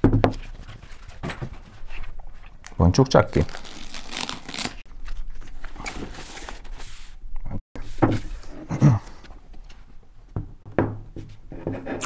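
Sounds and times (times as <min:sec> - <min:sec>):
plastic wrapping rustling: 0:03.1 - 0:06.6.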